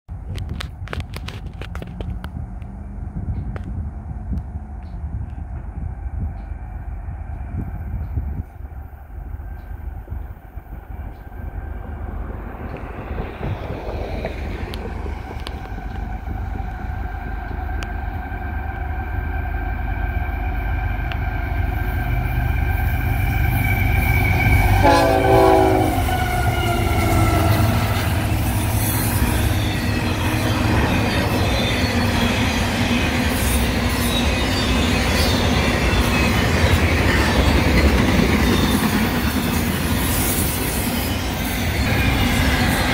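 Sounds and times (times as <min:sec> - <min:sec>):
train wheels rumbling on rails: 0:00.1 - 0:42.9
locomotive air horn: 0:24.6 - 0:28.1
wheel squeals: 0:26.0 - 0:42.9.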